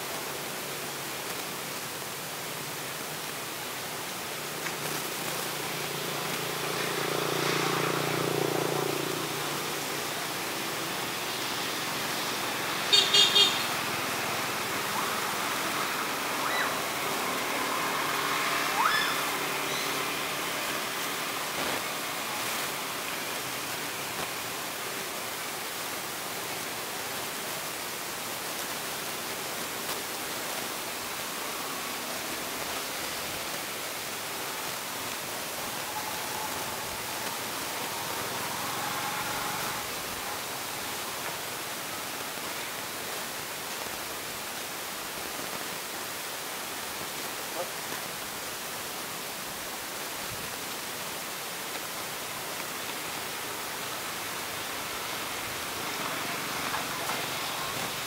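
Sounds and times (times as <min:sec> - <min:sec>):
steady background hiss: 0:00.0 - 0:58.0
vehicle horn toots: 0:12.9 - 0:13.7
short rising squeaks: 0:35.4 - 0:40.3.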